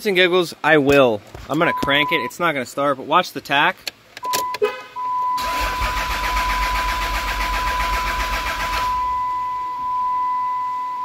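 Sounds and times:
steady electronic dash tone: 0:04.3 - 0:11.0
starter cranking diesel engine: 0:05.4 - 0:09.0.

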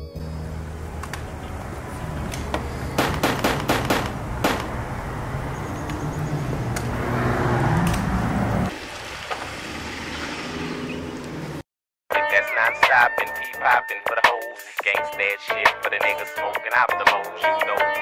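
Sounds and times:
handgun shots: 0:03.0 - 0:04.8.

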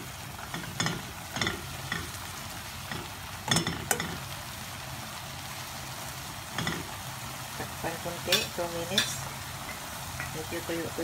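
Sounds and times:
frying sizzle: 0:00.0 - 0:11.0
spoon clinking and scraping wok: 0:00.4 - 0:04.3, 0:06.5 - 0:07.0, 0:08.2 - 0:10.6.

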